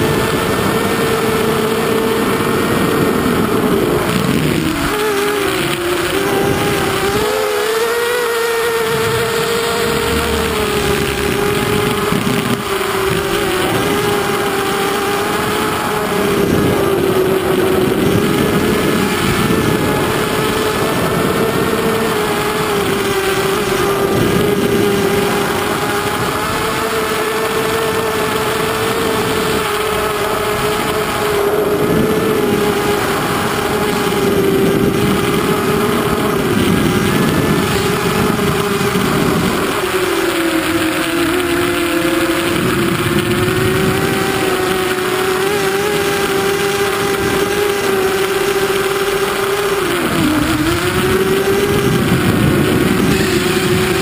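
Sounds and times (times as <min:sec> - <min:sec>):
drone motors whining: 0:00.0 - 0:54.0
wind rushing over microphone: 0:00.0 - 0:54.0.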